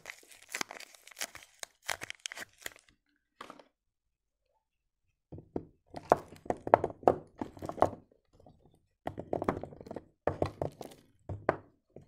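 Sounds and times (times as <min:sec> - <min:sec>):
soap bars knocking together: 0:05.3 - 0:12.0.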